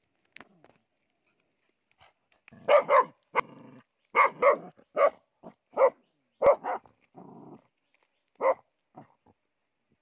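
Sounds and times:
dog barking: 2.6 - 3.2, 4.2 - 6.9, 8.4 - 8.6.

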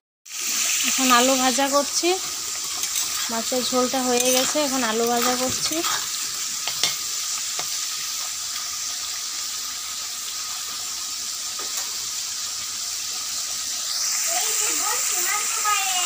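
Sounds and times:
potato slices sizzling in hot oil: 0.3 - 16.0.

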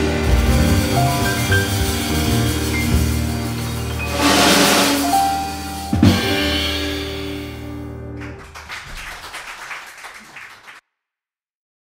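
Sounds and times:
cymbal wash: 0.0 - 7.8
jazz piano trio final chord: 0.0 - 8.9.

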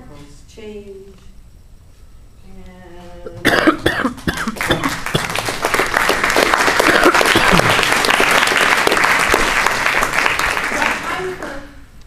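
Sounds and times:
audience applauding: 4.4 - 11.7.

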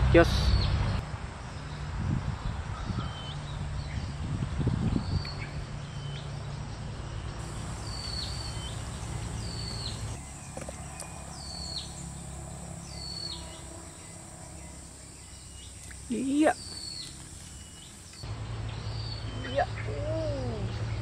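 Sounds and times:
steady low rumble: 7.2 - 21.0.

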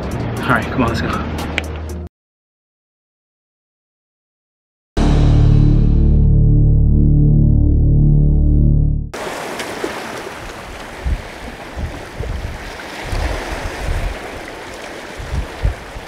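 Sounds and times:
music track: 5.0 - 9.2
surf washing against rocks: 9.2 - 16.0
wind on microphone: 10.3 - 16.0.

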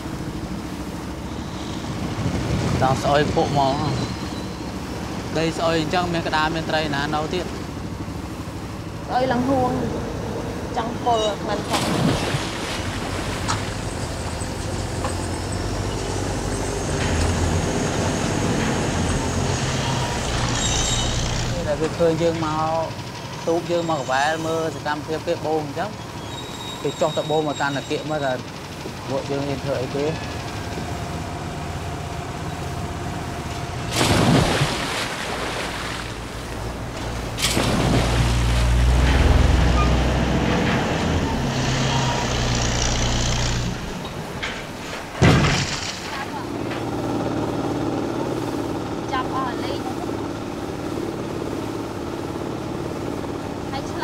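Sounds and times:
engine running: 0.0 - 54.0
noisy wash: 0.0 - 54.0
rushing water: 0.0 - 54.0
wind noise: 1.6 - 4.3.

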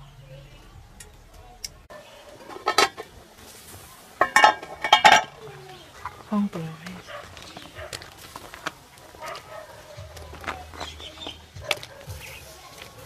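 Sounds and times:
pot and lid clanking: 2.4 - 3.2, 4.2 - 6.3.

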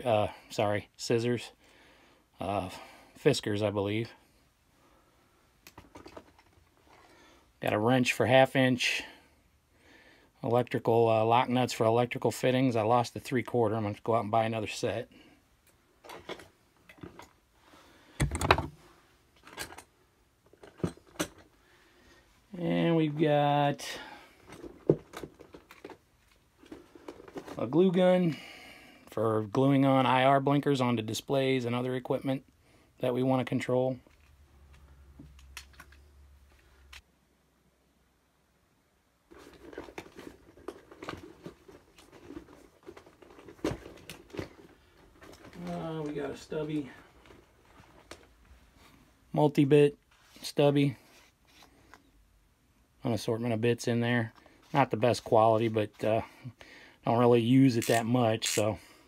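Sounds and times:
tool bag rustling: 39.3 - 48.0.

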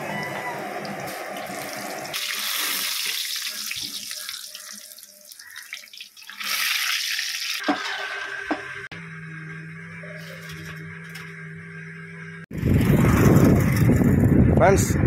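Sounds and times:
oil sizzling while deep-frying: 0.4 - 8.4.

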